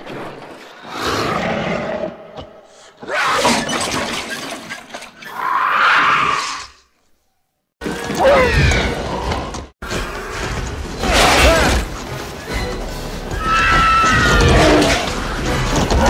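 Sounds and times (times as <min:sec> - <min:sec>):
creature shrieks and screeches: 0:05.2 - 0:06.9, 0:13.4 - 0:15.1.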